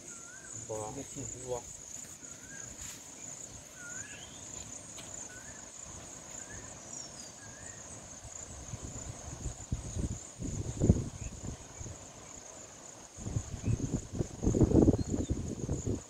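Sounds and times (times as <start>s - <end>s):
high-pitched insect drone: 0.0s - 16.0s
bird chirps: 3.7s - 4.6s.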